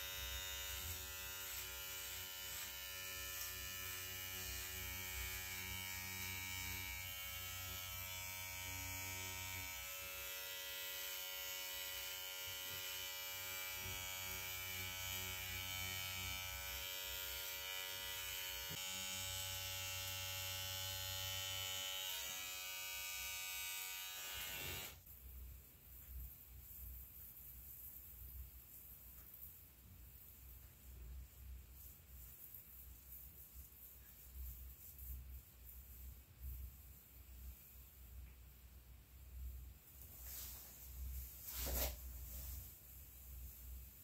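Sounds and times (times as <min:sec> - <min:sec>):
electric hair clipper buzzing: 0:00.0 - 0:25.0.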